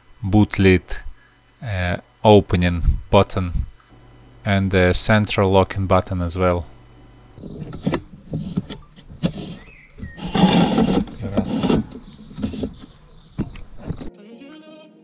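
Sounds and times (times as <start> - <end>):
plastic clicks and scraping: 7.4 - 14.1.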